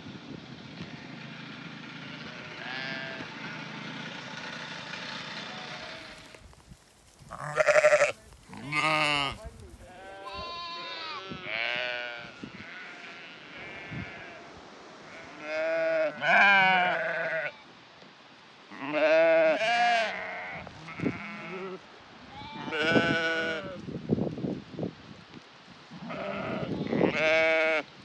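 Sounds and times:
sheep bleating: 0:02.0 - 0:03.7, 0:05.3 - 0:06.4, 0:07.2 - 0:14.4, 0:15.1 - 0:17.7, 0:18.7 - 0:23.8, 0:26.0 - 0:27.9.

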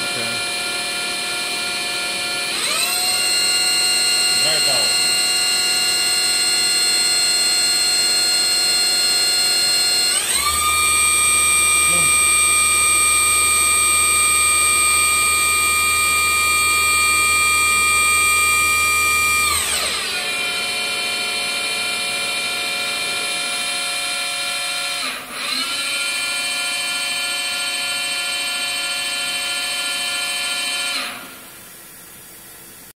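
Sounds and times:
machine spindle high whine: 0:00.0 - 0:32.9.

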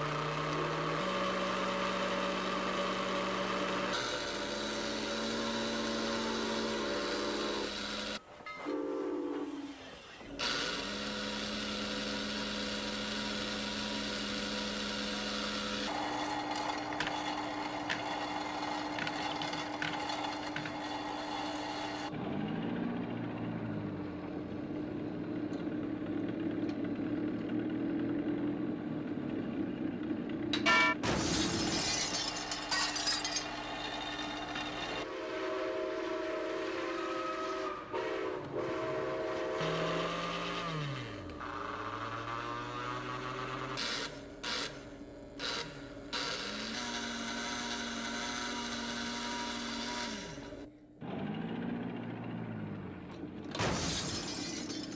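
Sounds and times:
toy train accessories whirring: 0:00.0 - 0:08.3, 0:09.4 - 0:22.2, 0:31.6 - 0:35.1, 0:39.6 - 0:52.4.

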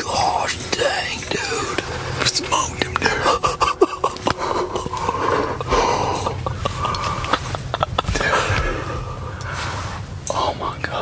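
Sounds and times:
person whispering: 0:00.0 - 0:03.6, 0:10.3 - 0:11.0
clothing and gear rustling: 0:04.0 - 0:10.2.

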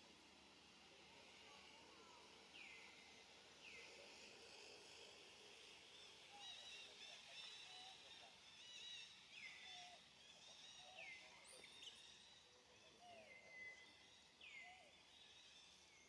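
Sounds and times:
soft steady hiss: 0:00.0 - 0:06.1.

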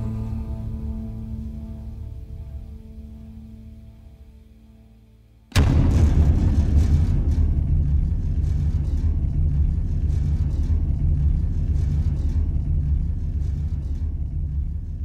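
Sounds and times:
heavy low rumble: 0:05.6 - 0:15.0.

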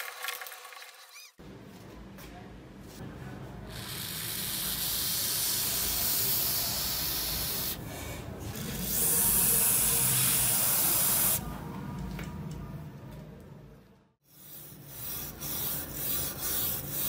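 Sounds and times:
aerosol can spraying: 0:04.2 - 0:07.8, 0:08.8 - 0:11.4.

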